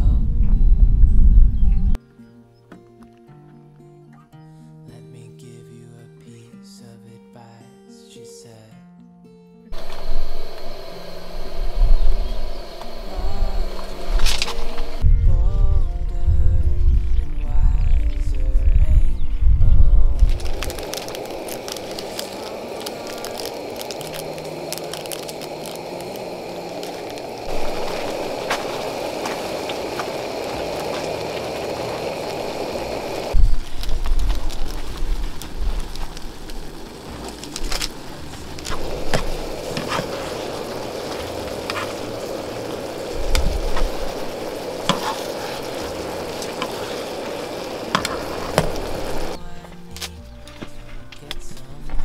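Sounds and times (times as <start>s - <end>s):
noodles simmering and sizzling: 9.8s - 15.0s, 20.2s - 49.4s
utensils scraping and tapping pan: 44.8s - 45.6s.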